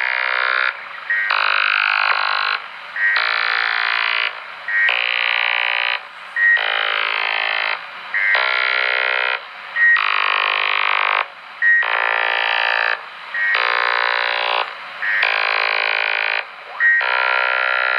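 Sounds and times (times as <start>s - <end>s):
short steady radio beep: 1.0s - 1.6s, 3.0s - 3.5s, 4.7s - 7.6s, 8.2s - 17.9s
burst of many tones: 13.4s - 17.9s.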